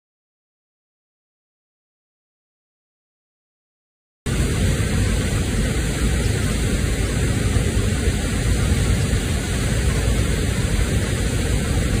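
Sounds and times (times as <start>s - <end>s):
waterfall rushing: 4.3s - 12.0s.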